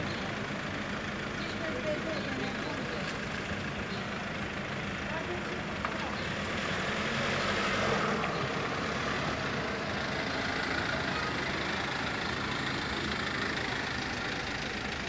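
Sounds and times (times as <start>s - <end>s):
street traffic: 0.0s - 15.0s
van engine running: 0.0s - 15.0s.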